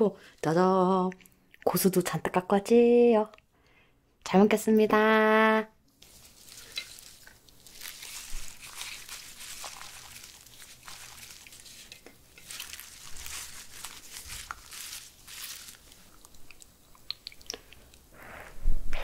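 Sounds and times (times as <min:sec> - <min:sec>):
herbs rustling and crackling: 0:05.9 - 0:18.1.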